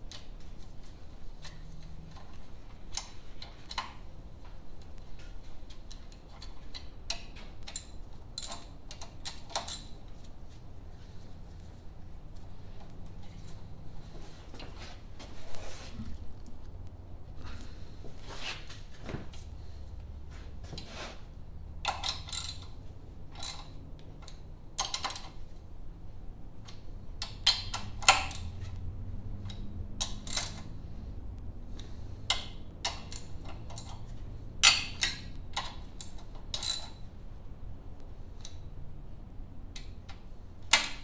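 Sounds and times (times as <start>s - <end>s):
socket ratchet clicking: 21.8s - 22.8s, 29.5s - 30.8s.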